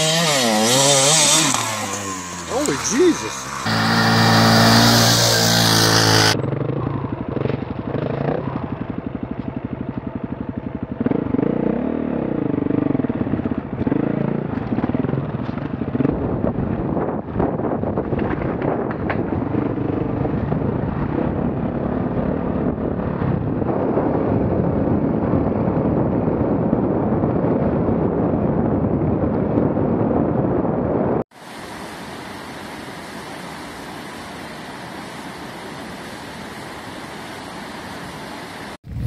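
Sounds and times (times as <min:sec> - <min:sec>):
off-road vehicle engine running: 0:00.0 - 0:31.2
wind noise on microphone: 0:12.4 - 0:31.8
river rapids rushing: 0:31.4 - 0:38.8.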